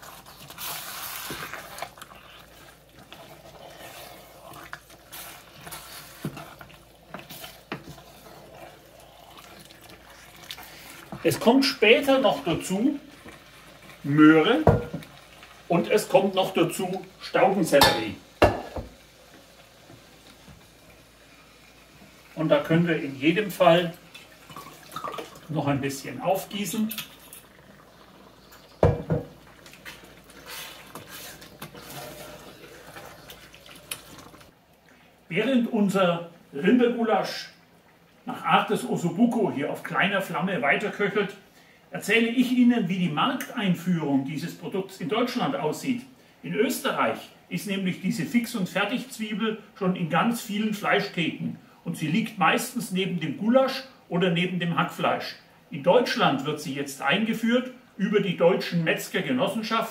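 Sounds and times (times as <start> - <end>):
spoon stirring thick stew: 0.0 - 20.4, 28.5 - 34.4.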